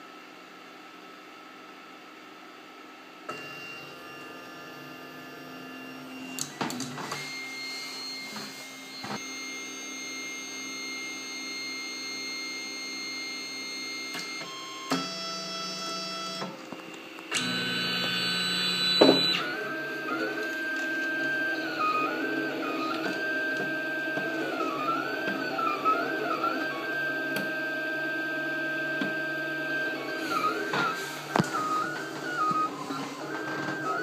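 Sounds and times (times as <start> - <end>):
stepper motors whining: 17.3 - 34.0.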